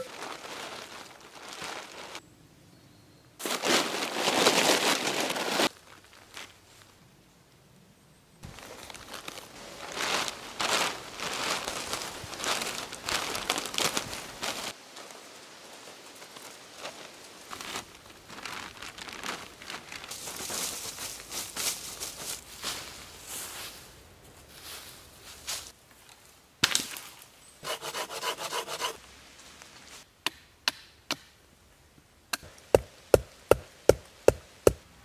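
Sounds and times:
plastic tarp crinkling: 0.0 - 2.2, 3.4 - 6.5, 8.5 - 22.4.

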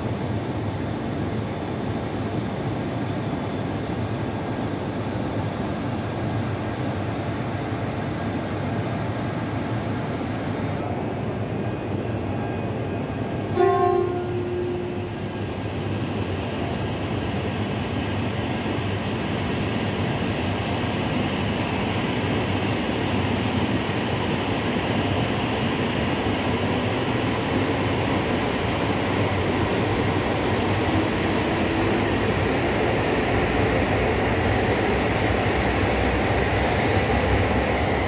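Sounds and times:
train rushing past: 10.8 - 19.0, 19.7 - 38.0
train horn blast: 13.5 - 15.3.

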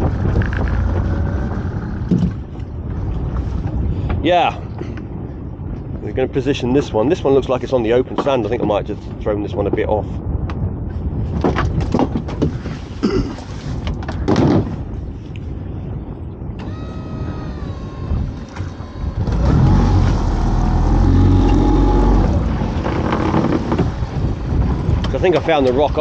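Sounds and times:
outboard motor running: 0.0 - 3.6, 16.5 - 26.0
knocks and thumps: 2.0 - 2.4, 11.4 - 12.7, 22.8 - 24.0.

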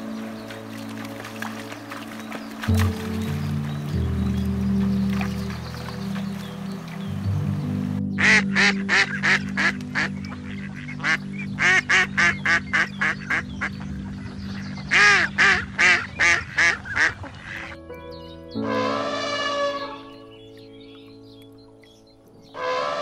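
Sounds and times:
background music with low tones: 0.0 - 23.0
duck quacking rapidly: 8.2 - 13.4.

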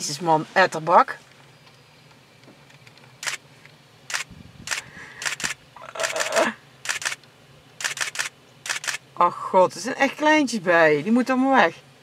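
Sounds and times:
camera shutter clicks: 3.2 - 3.4, 4.1 - 9.0.

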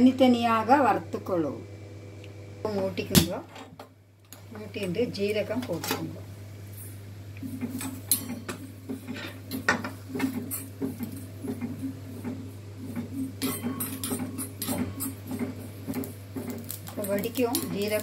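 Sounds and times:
steady low hum: 0.0 - 18.0
metal spoon scraping iron pan: 13.0 - 15.5.

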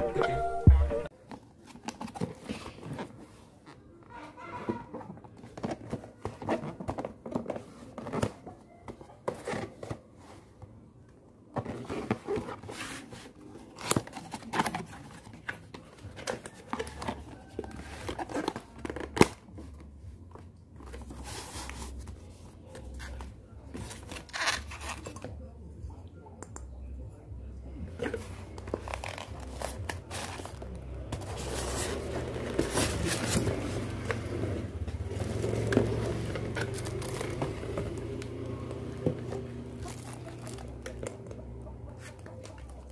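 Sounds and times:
cardboard box rustling and scraping: 11.6 - 19.9, 20.8 - 25.1, 28.0 - 40.8.

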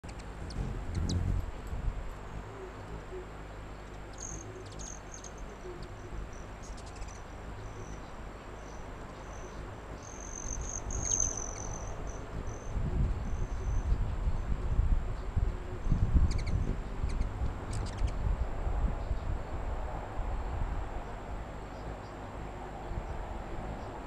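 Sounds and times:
low whirring rumble: 0.0 - 24.0
insect chirping: 3.8 - 12.8.

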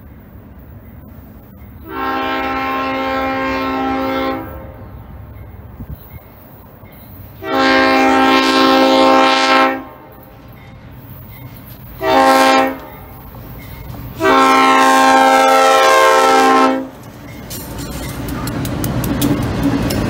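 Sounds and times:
train rumble: 0.0 - 20.0
locomotive air horn blasts: 1.8 - 4.8, 7.4 - 10.1, 12.0 - 13.0, 14.2 - 17.0.

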